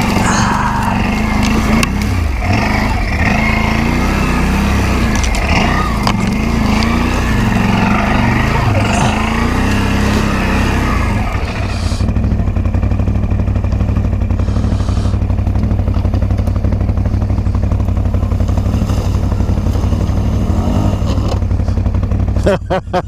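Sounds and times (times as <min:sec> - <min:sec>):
atv engine rumbling: 0:00.0 - 0:23.0.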